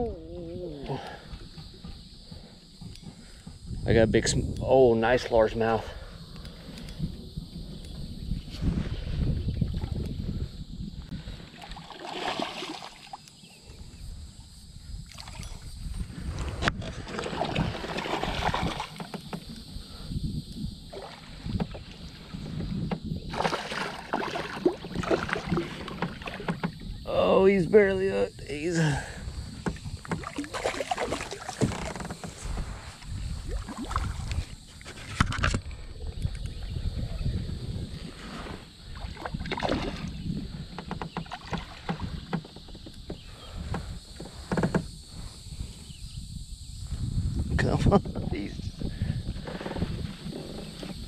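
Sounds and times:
water sloshing: 0:11.5 - 0:13.4, 0:16.7 - 0:19.7, 0:23.3 - 0:27.0, 0:28.8 - 0:35.6, 0:38.8 - 0:40.2, 0:40.8 - 0:42.9
fish thrashing and splashing: 0:11.6 - 0:13.2, 0:17.0 - 0:19.1, 0:23.3 - 0:26.8, 0:29.7 - 0:32.6, 0:39.0 - 0:40.2.

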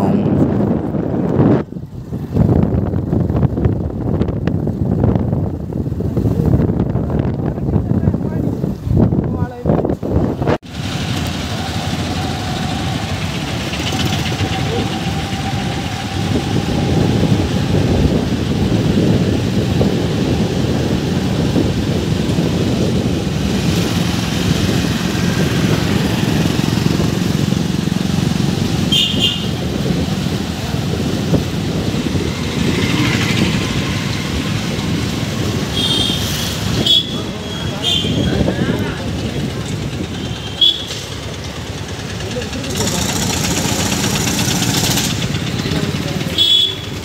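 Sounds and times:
wind noise on microphone: 0:00.0 - 0:42.2
motorcycle engine: 0:10.2 - 0:47.0.

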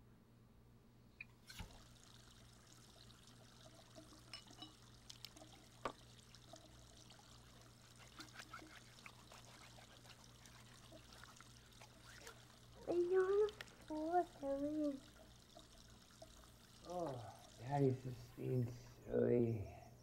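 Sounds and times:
tap water running into sink: 0:01.4 - 0:18.3
dishes clinking: 0:04.2 - 0:04.9.

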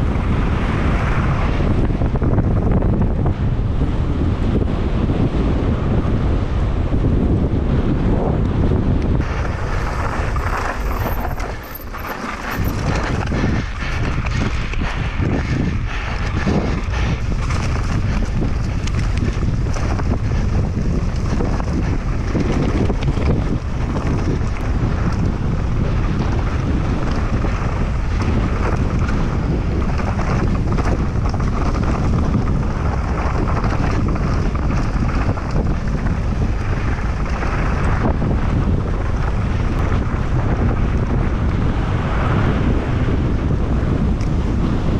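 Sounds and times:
tyres rumbling on dirt trail: 0:00.0 - 0:44.9
wind buffeting microphone: 0:00.0 - 0:44.9
bike knocks and rattles: 0:09.2 - 0:41.2.

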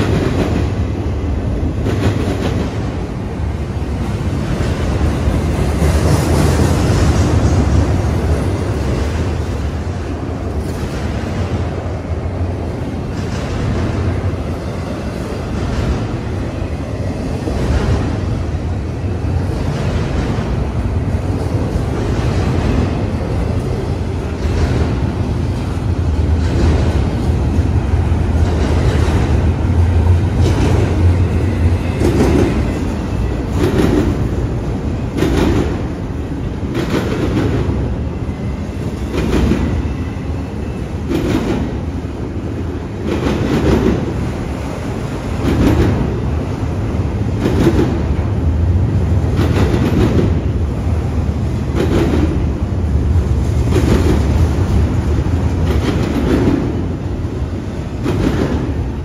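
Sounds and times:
train rumbling: 0:00.0 - 0:59.0
train wheels clicking over rail joints: 0:19.2 - 0:48.5, 0:49.1 - 0:59.0.

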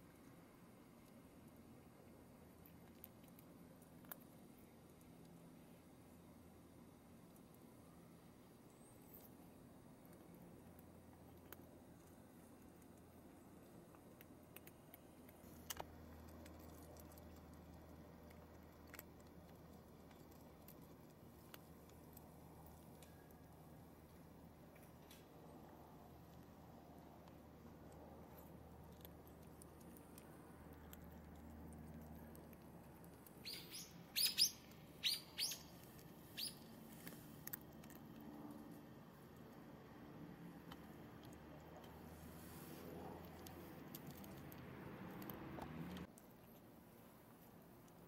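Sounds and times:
cat crunching dry kibble: 0:00.1 - 0:06.5, 0:08.4 - 0:34.1, 0:35.7 - 0:48.0
bird chirping: 0:33.3 - 0:36.7.

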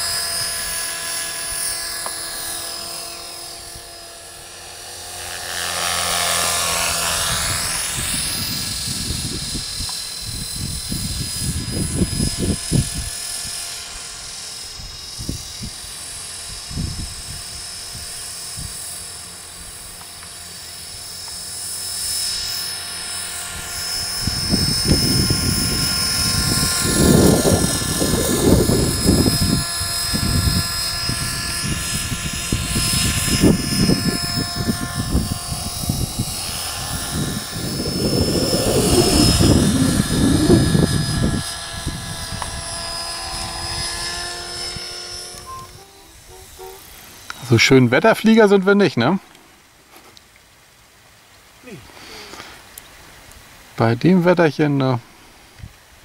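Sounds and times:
model helicopter motor whine: 0:00.0 - 0:49.8
low rushing: 0:23.2 - 0:48.5.

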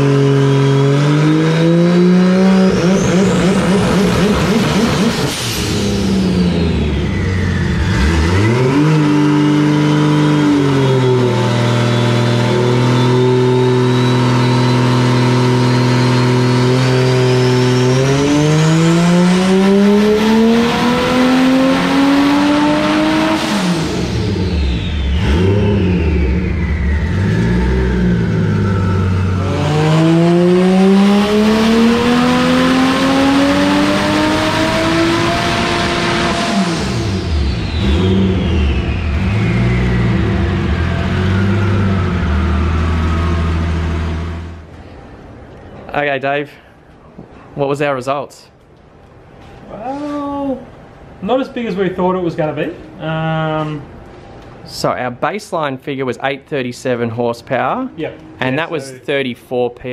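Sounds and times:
car engine revving on dyno: 0:00.0 - 0:44.7
high turbo whistle: 0:02.3 - 0:09.0, 0:10.1 - 0:44.4.

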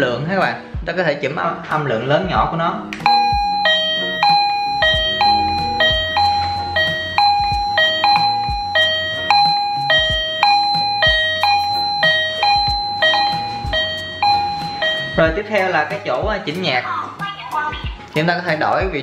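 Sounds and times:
electronic doorbell melody: 0:03.0 - 0:15.8.

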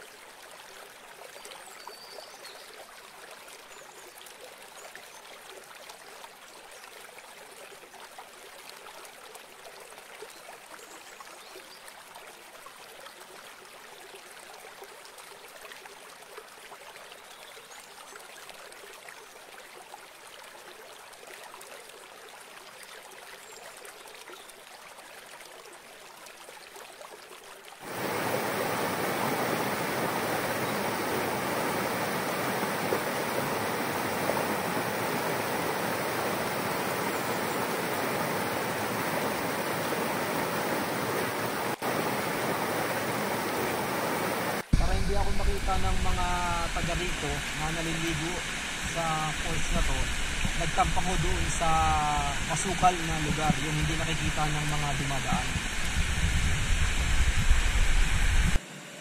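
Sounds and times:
river water rushing: 0:27.8 - 0:55.9.

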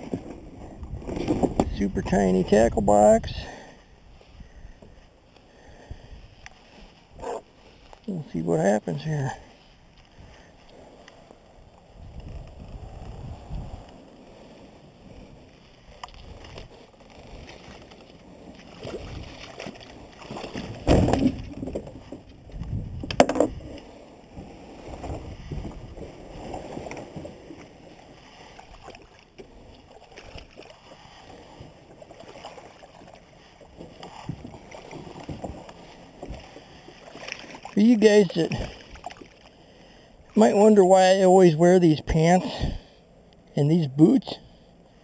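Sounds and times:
kayak rustling and scraping: 0:00.0 - 0:45.0
loud kayak thumps: 0:20.4 - 0:23.7.

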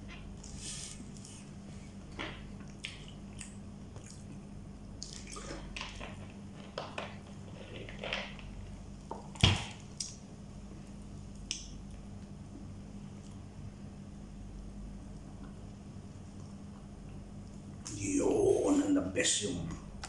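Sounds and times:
wet chewing and smacking: 0:02.2 - 0:08.4.

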